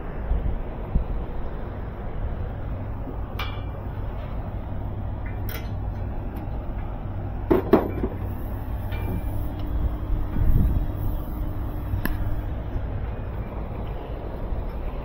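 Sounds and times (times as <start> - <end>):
steady low hum: 0.0 - 15.0
knocks and clanks on steel hatch: 7.4 - 8.2.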